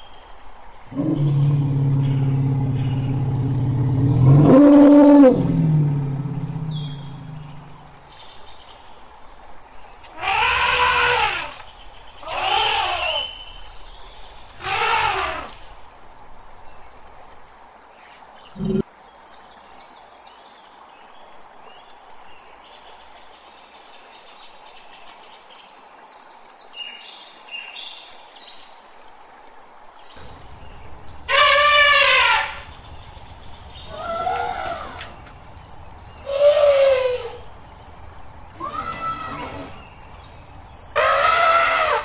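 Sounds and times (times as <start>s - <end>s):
faint chirping: 0.8s - 8.0s, 18.5s - 18.8s, 30.2s - 41.0s
elephant trumpeting: 0.9s - 7.8s, 10.2s - 11.5s, 12.3s - 13.2s, 14.6s - 15.5s, 30.2s - 42.0s.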